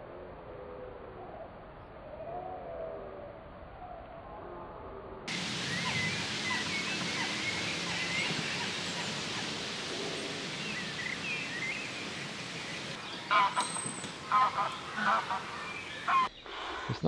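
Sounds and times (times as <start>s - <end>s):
steady outdoor hiss: 0.0s - 17.0s
small birds chirping: 5.3s - 17.0s.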